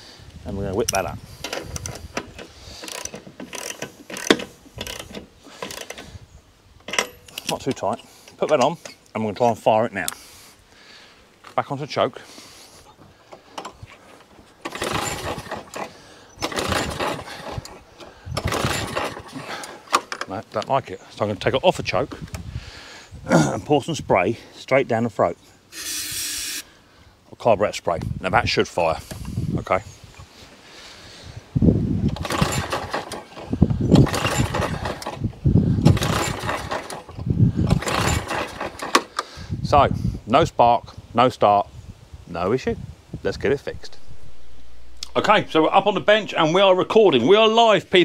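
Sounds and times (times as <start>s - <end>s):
lawn mower engine cranking: 0.6s - 10.5s, 12.3s - 22.5s, 31.9s - 39.4s, 43.8s - 48.0s
recoil starter pulls: 0.7s - 6.2s, 6.8s - 10.3s, 13.0s - 20.9s, 32.0s - 39.4s, 43.8s - 48.0s.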